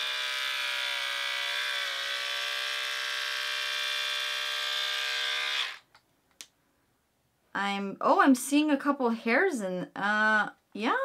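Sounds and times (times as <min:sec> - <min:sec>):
electric trimmer motor whine: 0:00.0 - 0:05.9.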